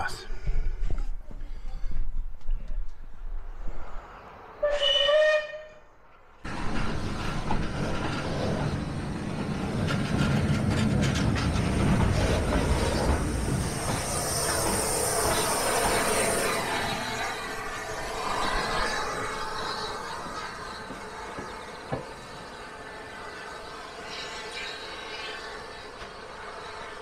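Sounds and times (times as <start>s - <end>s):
locomotive rumbling past: 3.3s - 27.0s
steam locomotive whistle blast: 4.6s - 5.9s
steam hissing: 6.5s - 27.0s.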